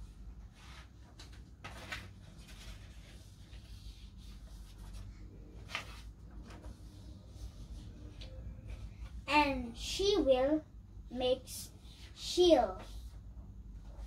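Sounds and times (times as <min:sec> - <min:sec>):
paper rustling and crackling: 0:00.6 - 0:07.9.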